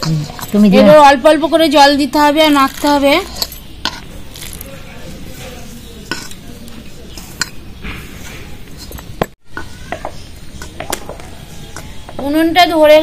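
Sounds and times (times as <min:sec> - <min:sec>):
hands kneading dough: 0:02.1 - 0:12.4.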